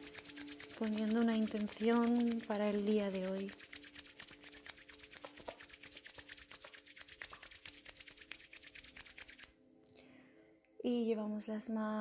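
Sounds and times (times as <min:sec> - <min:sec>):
palms rubbing together: 0:00.0 - 0:09.5.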